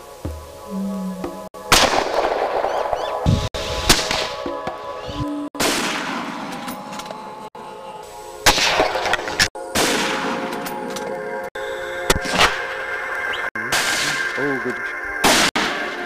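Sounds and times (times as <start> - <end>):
background music with held tones: 0.0 - 16.0
gunshots with echo: 1.6 - 4.4, 5.6 - 6.6, 8.5 - 10.6, 13.7 - 14.4, 15.2 - 16.0.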